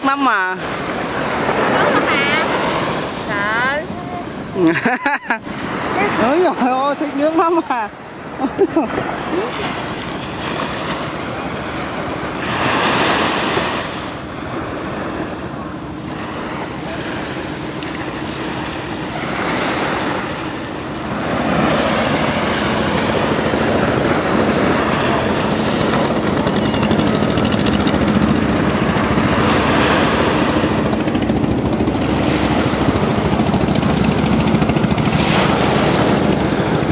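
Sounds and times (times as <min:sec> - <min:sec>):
waves breaking on sandy beach: 0:00.0 - 0:36.9
wind buffeting microphone: 0:08.9 - 0:36.9.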